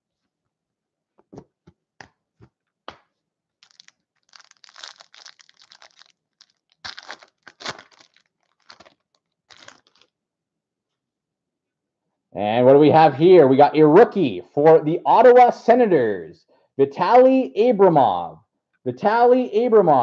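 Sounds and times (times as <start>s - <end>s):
foil pack tearing and crinkling: 3.6s - 10.1s.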